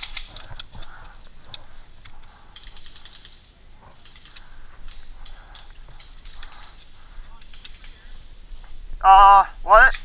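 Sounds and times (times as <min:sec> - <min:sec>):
rifle and gear clicking and rattling: 0:00.0 - 0:08.8.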